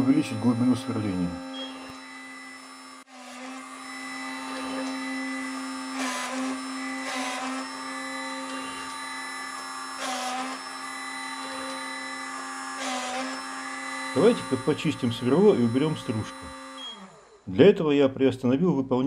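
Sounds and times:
spindle motor humming: 0:00.0 - 0:17.5.

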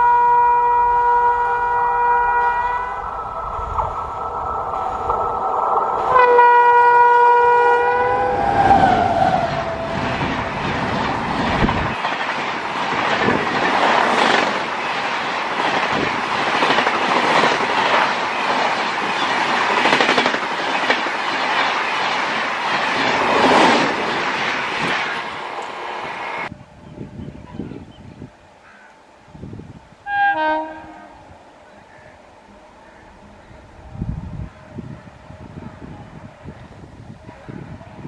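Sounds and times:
locomotive horn: 0:00.0 - 0:03.1, 0:06.0 - 0:10.4, 0:30.0 - 0:31.3.

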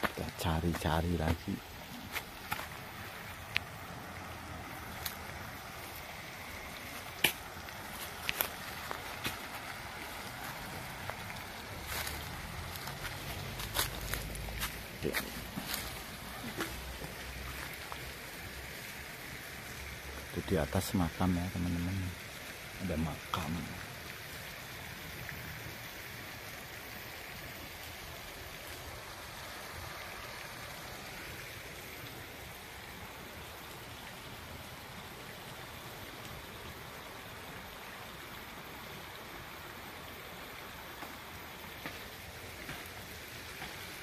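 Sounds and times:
river water rushing: 0:00.0 - 0:44.0.

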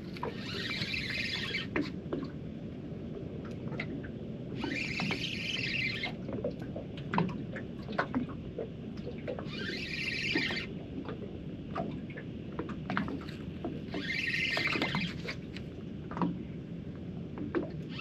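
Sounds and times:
fishing reel whirring: 0:00.2 - 0:01.7, 0:04.6 - 0:06.1, 0:09.5 - 0:10.7, 0:13.9 - 0:15.4
steady low rumble: 0:15.1 - 0:18.0.

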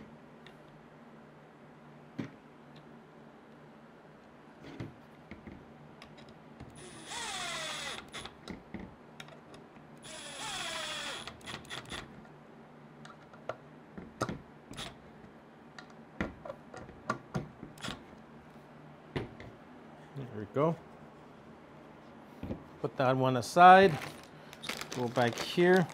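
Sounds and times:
cordless drill driving screws: 0:06.8 - 0:08.3, 0:10.0 - 0:12.0.

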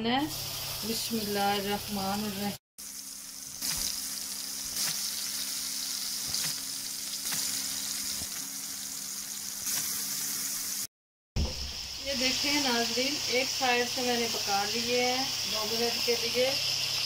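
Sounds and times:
meat sizzling in hot oil: 0:00.2 - 0:10.9, 0:11.5 - 0:17.0
oil crackling: 0:02.9 - 0:10.6.

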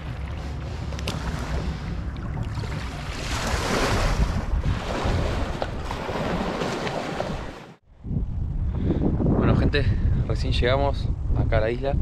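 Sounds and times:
small waves splashing on shore: 0:00.0 - 0:07.8
wind buffeting microphone: 0:00.0 - 0:12.0.

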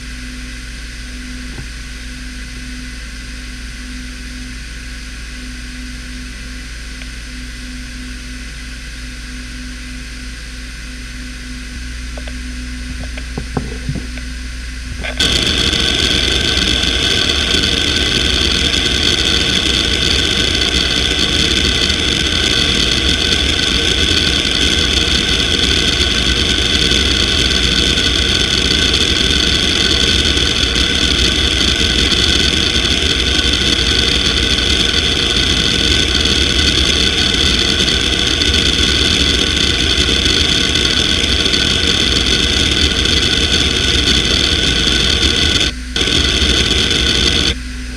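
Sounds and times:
hard drive spindle whine: 0:00.0 - 0:47.9
hard drive seek chatter: 0:15.0 - 0:47.6.

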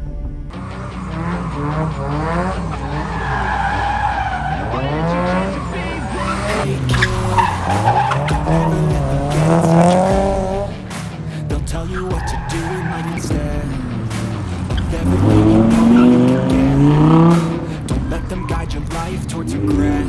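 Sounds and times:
race car engine revving: 0:00.5 - 0:20.0
tyre squeal: 0:02.8 - 0:08.8.

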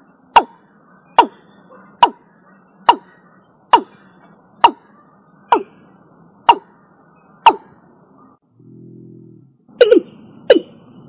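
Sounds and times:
bird calling short sharp notes: 0:00.3 - 0:05.8.

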